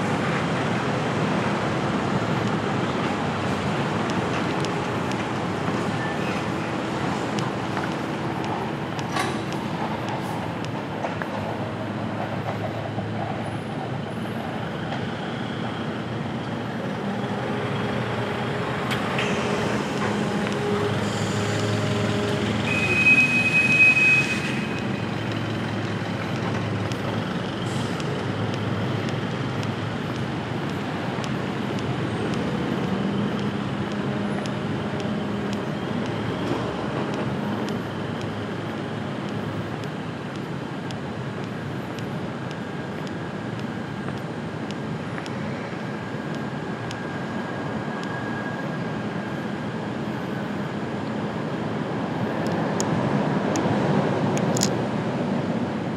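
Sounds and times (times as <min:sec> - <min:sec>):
city traffic passing: 0:00.0 - 0:55.9
high squeal: 0:20.7 - 0:25.2.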